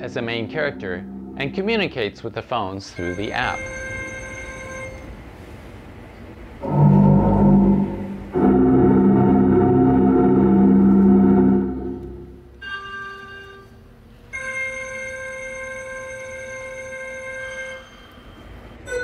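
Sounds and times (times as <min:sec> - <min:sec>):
high bright electronic tones: 0:00.0 - 0:02.2
low organ-like chords: 0:00.0 - 0:02.4, 0:06.6 - 0:12.6.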